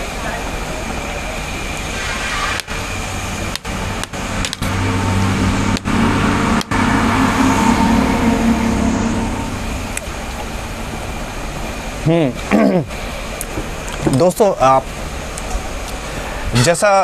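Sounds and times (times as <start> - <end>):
vehicle engine humming: 2.6 - 13.9.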